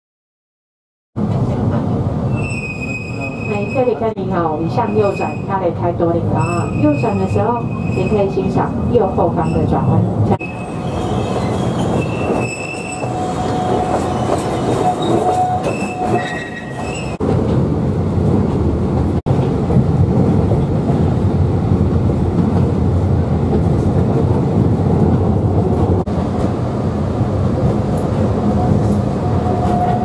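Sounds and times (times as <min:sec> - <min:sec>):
train rumbling on track: 0:01.2 - 0:30.0
train wheels squealing: 0:02.3 - 0:04.0, 0:06.4 - 0:08.3, 0:10.4 - 0:17.2, 0:28.6 - 0:30.0.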